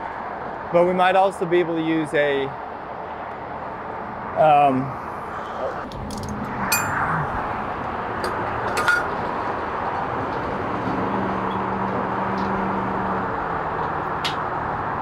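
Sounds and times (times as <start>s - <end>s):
steady rumbling: 4.5s - 10.0s
low hum: 5.0s - 8.6s.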